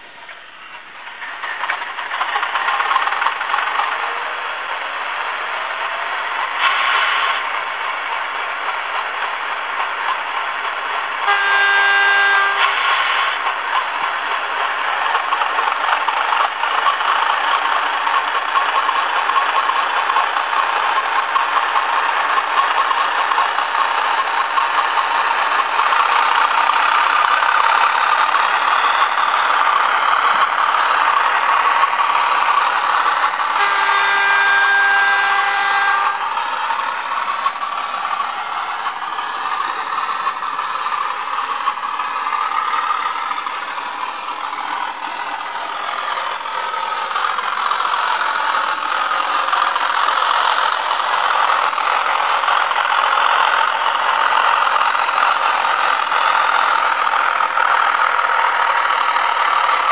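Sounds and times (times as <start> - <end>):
diesel engine running: 0.0 - 59.9
train horn blast: 11.2 - 13.5, 33.5 - 36.9.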